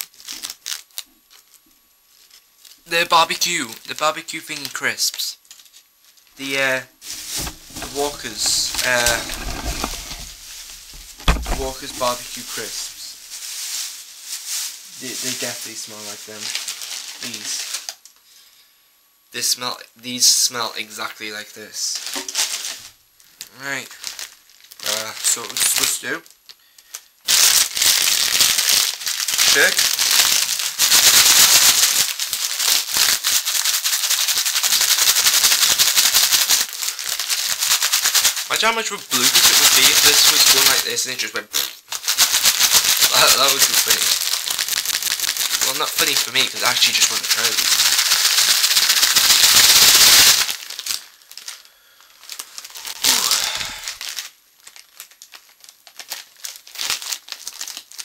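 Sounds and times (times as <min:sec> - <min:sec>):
crisps rattling in plastic bag: 0:00.0 - 0:01.6, 0:07.0 - 0:18.0, 0:23.9 - 0:26.0, 0:26.9 - 0:58.0
plastic packet crinkling: 0:00.0 - 0:02.8, 0:03.4 - 0:06.3, 0:07.0 - 0:18.1, 0:22.0 - 0:58.0.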